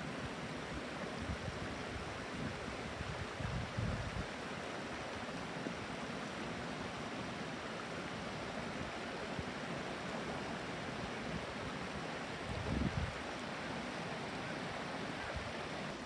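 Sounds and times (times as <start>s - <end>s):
stream babbling over stones: 0.0s - 16.0s.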